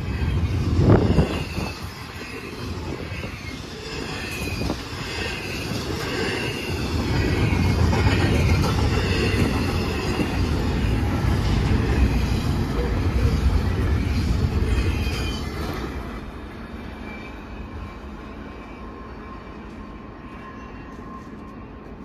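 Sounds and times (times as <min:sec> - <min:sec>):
faint high wheel squeals: 0:00.0 - 0:16.0, 0:16.6 - 0:22.0
loud train clunk: 0:00.0 - 0:16.3
train cars rumbling on rails: 0:00.0 - 0:22.0.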